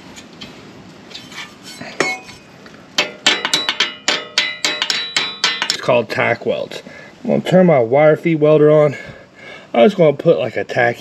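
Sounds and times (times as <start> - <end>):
hammer striking steel bar: 2.0 - 2.4, 3.0 - 5.9
ringing metal strikes: 2.0 - 2.4, 3.0 - 5.9.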